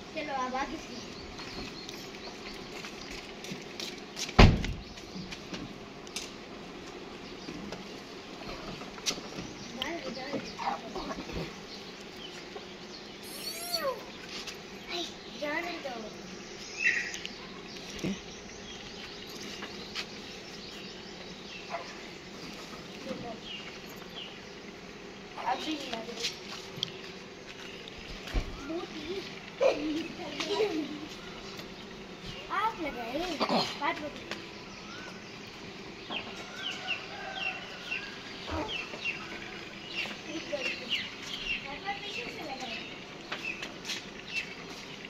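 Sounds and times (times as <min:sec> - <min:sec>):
steady hum: 0:00.0 - 0:45.0
car door slamming: 0:04.4 - 0:04.8.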